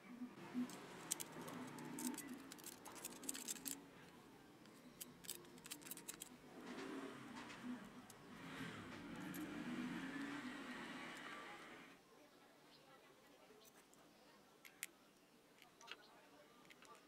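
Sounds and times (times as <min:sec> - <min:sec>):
metal pick scraping gears: 0:00.6 - 0:03.8, 0:04.7 - 0:11.9.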